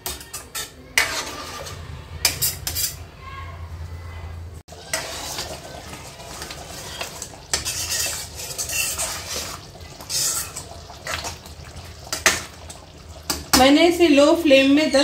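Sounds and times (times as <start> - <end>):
spoon scraping a steel pan: 0.0 - 3.0, 4.8 - 5.7, 6.8 - 10.7.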